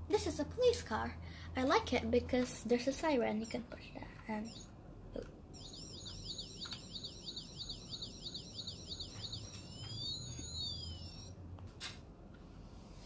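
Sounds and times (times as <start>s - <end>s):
toy police siren: 5.6s - 11.4s.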